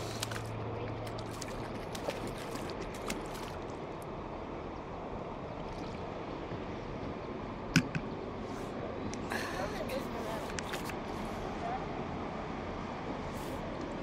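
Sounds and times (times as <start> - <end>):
water lapping: 0.0 - 7.0.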